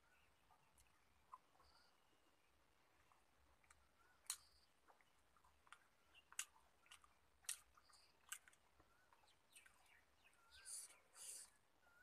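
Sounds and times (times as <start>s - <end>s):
person chewing: 3.0s - 9.9s.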